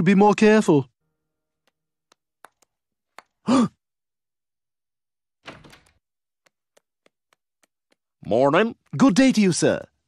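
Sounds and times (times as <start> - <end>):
door knocking shut: 5.4 - 6.0.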